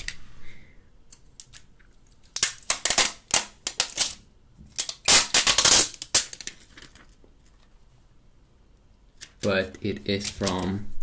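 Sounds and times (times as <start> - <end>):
plastic film crackling: 2.2 - 4.2, 4.8 - 7.2.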